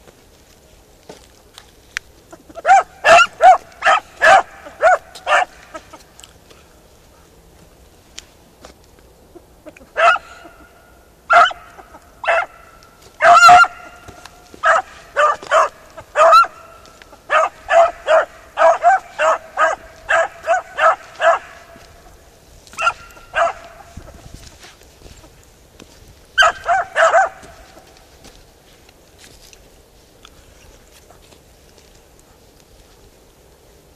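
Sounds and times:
hounds barking: 2.4s - 6.0s, 9.8s - 24.7s, 26.4s - 28.0s.

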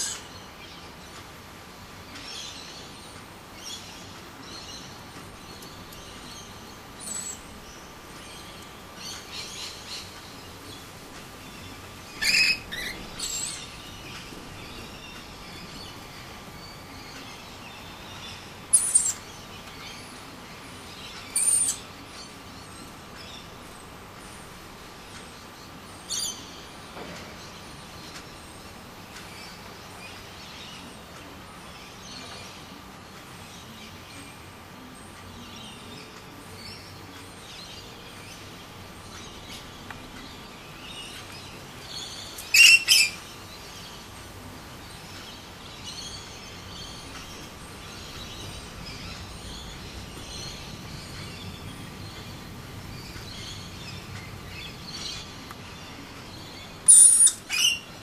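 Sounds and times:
soft bird chirping: 2.0s - 58.0s
lorikeet high calls: 12.2s - 13.6s, 42.4s - 43.2s, 56.8s - 57.9s.

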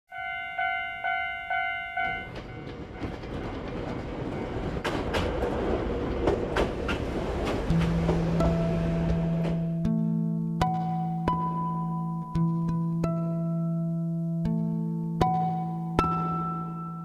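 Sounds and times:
level crossing bell clanging: 0.1s - 3.3s
electric train rumbling: 0.1s - 9.9s
wheels clicking over rail joints: 1.9s - 9.7s
music: 7.6s - 17.0s.

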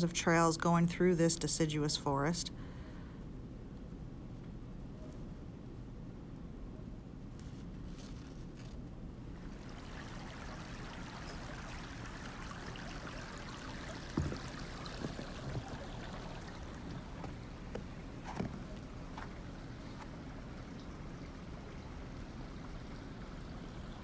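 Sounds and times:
water babbling in a creek: 9.4s - 24.0s
soft thumps: 14.0s - 16.0s.

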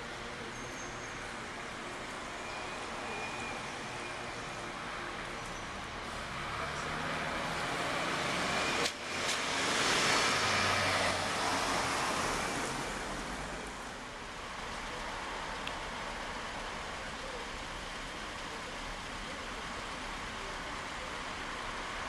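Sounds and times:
car tyres hissing on wet road: 6.0s - 22.0s.

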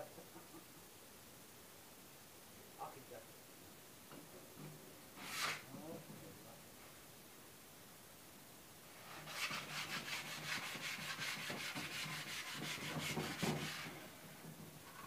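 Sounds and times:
sandpaper rubbing on wood: 9.1s - 14.0s.

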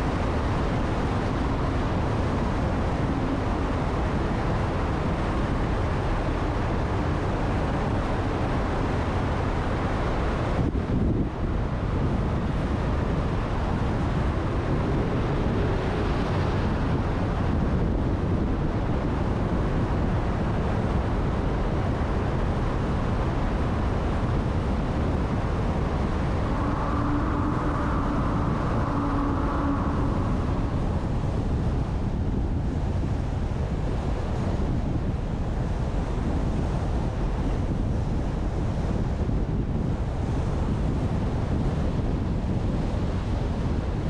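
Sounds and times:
faint hum: 0.0s - 34.5s
car road and wind noise: 0.0s - 44.0s.

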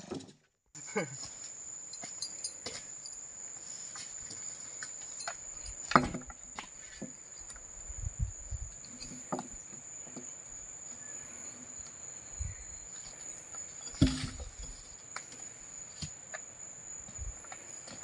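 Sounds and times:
high-pitched insect drone: 7.1s - 15.1s.

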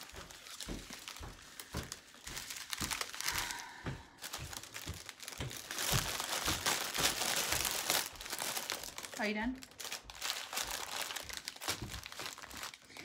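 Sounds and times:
plastic bag crinkling: 0.0s - 13.0s
soft thumps: 3.7s - 7.2s.

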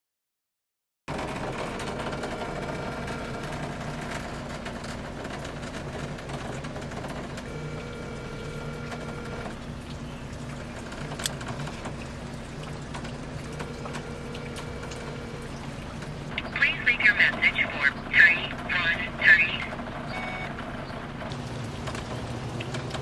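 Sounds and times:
engine and road noise in cabin: 1.1s - 23.0s
faint hum tones: 6.7s - 21.8s.

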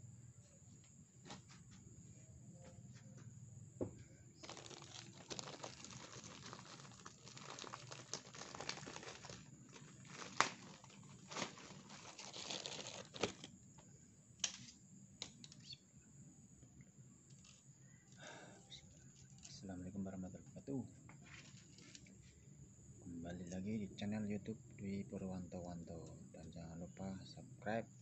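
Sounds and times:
plastic bag crinkling: 4.4s - 13.6s.

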